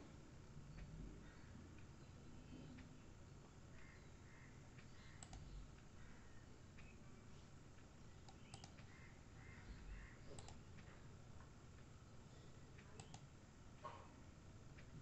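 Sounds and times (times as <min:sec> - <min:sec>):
computer mouse clicks: 0:04.7 - 0:05.9, 0:07.8 - 0:09.1, 0:10.3 - 0:10.9, 0:12.8 - 0:13.3.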